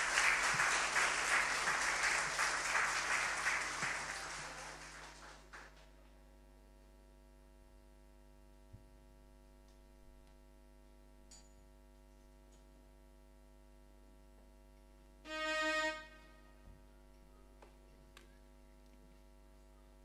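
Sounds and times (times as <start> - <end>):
short held musical note: 15.3 - 16.6.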